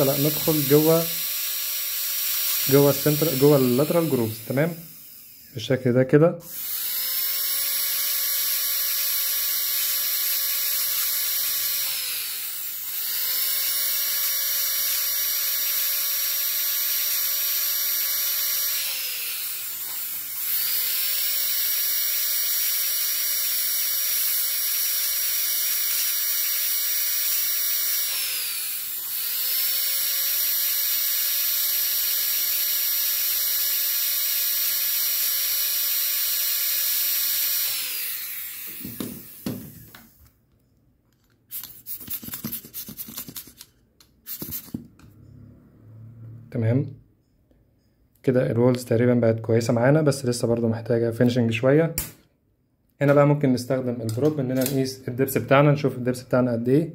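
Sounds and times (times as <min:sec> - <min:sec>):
dental drill whining: 0:00.0 - 0:40.3, 0:41.5 - 0:46.6.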